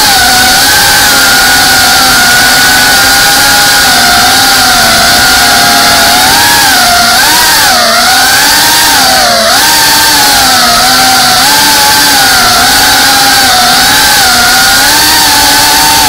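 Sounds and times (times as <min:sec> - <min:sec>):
drone motors whining: 0:00.0 - 0:16.0.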